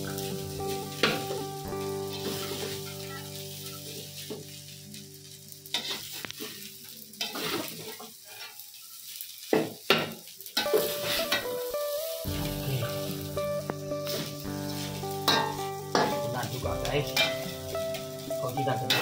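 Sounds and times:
rice sizzling in a wok: 0.0s - 19.0s
spatula scraping a wok: 5.7s - 9.8s, 10.6s - 11.5s, 14.0s - 16.2s.

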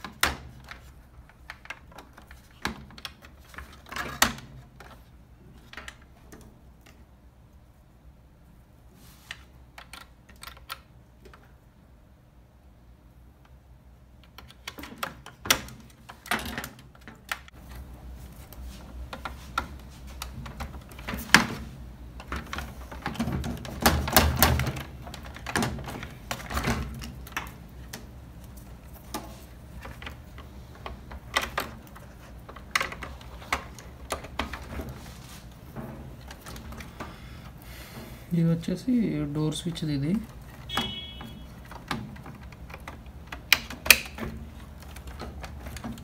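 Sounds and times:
wires rustling: 0.0s - 11.8s, 13.1s - 46.0s
plastic connectors clicking: 39.8s - 46.0s.

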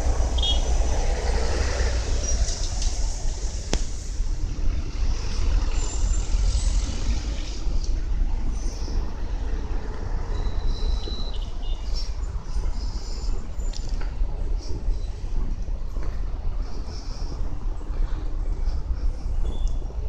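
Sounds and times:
low street rumble: 0.0s - 20.0s.

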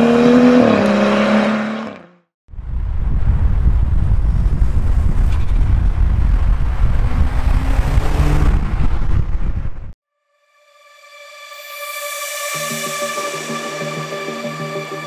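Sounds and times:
car engine: 0.0s - 2.2s, 3.8s - 10.0s
wind buffeting on microphone: 2.5s - 10.0s.

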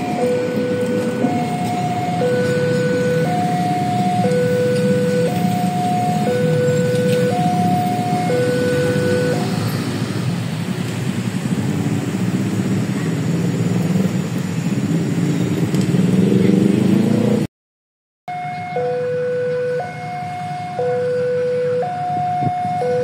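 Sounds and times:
level crossing alarm: 0.0s - 9.7s, 18.3s - 23.0s
passing traffic: 0.0s - 17.5s, 18.3s - 23.0s
engine revving: 14.8s - 17.5s.

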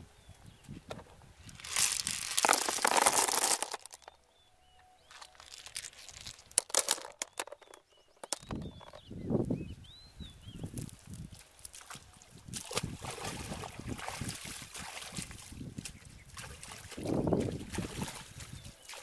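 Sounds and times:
shells rattling into a wicker basket: 1.5s - 4.2s, 5.1s - 9.0s
bird chirping: 3.9s - 6.6s, 7.2s - 10.8s
shells clicking together: 5.4s - 8.5s.

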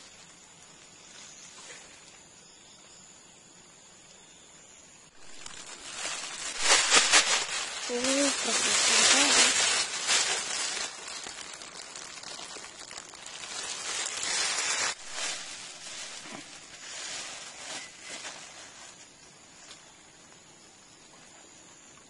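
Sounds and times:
plastic bag crinkling: 5.2s - 18.6s.

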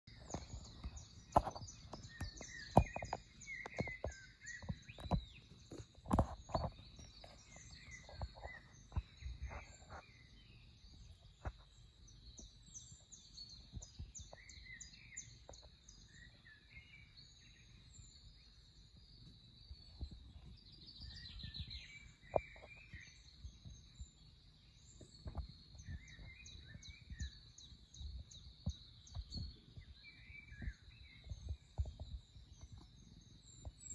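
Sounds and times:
small birds chirping: 0.0s - 33.9s
sharp taps and knocks: 0.2s - 10.0s.

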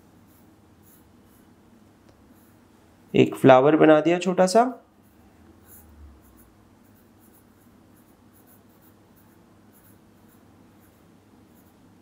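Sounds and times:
pencil scratching on paper: 0.0s - 1.6s, 2.3s - 2.7s, 5.0s - 12.0s
low steady hum: 0.0s - 12.0s.

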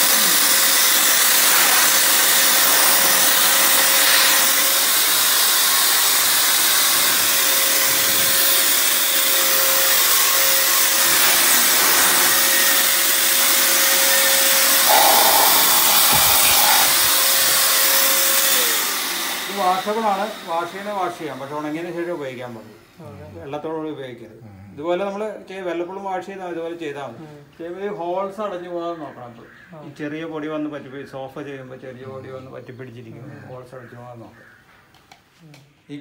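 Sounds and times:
handheld vacuum blowing air: 0.0s - 22.0s
motor winding down: 9.7s - 21.0s.

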